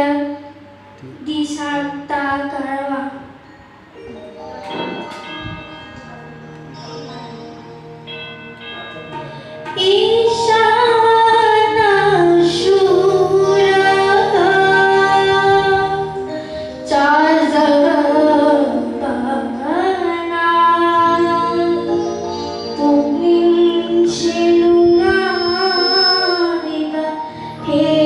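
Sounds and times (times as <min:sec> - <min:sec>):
electronic keyboard: 0:00.0 - 0:28.0
woman singing into a microphone: 0:01.2 - 0:03.4, 0:09.7 - 0:22.0, 0:22.8 - 0:28.0.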